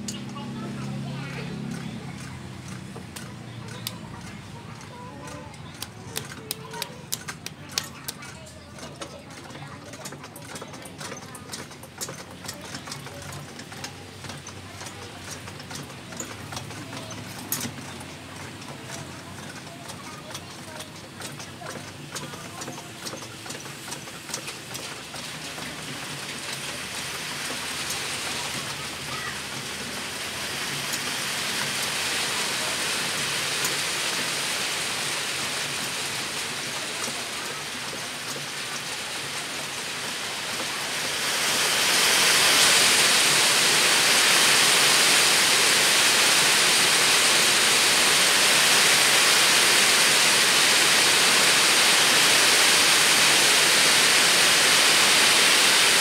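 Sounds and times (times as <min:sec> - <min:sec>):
rain-like hissing noise: 0:24.4 - 0:56.0.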